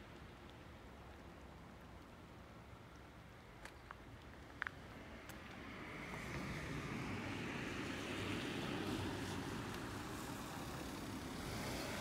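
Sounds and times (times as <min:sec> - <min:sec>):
hiss: 0:08.1 - 0:12.0.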